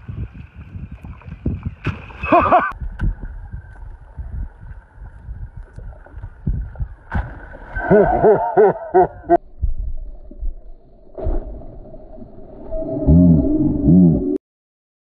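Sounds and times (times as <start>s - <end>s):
wind buffeting microphone: 0.0s - 8.3s.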